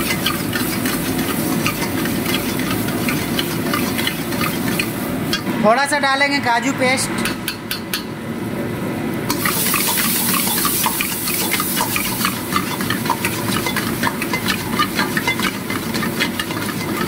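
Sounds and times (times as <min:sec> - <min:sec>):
food sizzling: 0:00.0 - 0:05.5, 0:09.3 - 0:17.0
ladle scraping a pan: 0:09.4 - 0:17.0.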